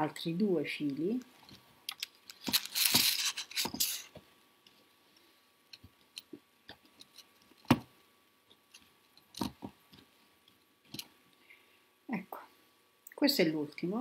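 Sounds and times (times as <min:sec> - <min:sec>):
cord rustling: 0:01.4 - 0:04.9.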